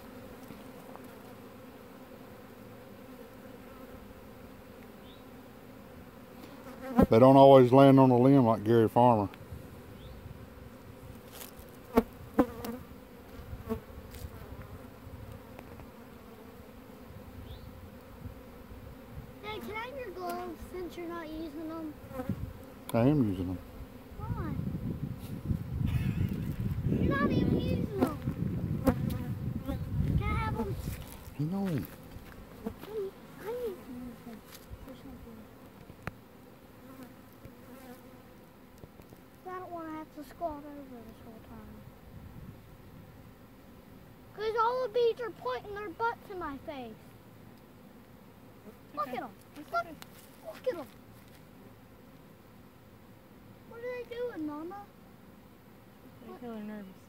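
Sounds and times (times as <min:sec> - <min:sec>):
bees buzzing: 0:00.0 - 0:57.0.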